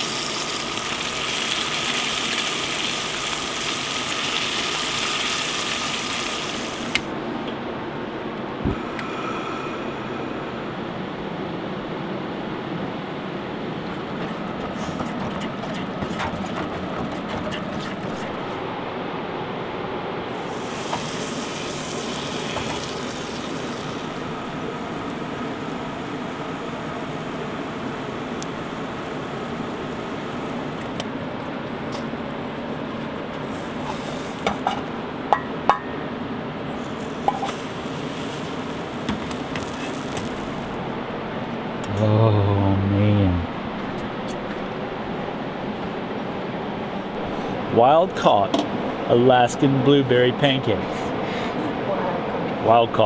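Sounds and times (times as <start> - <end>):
batter sizzling in pan: 0.0 - 7.1, 20.3 - 31.0, 31.8 - 34.9, 36.7 - 40.8.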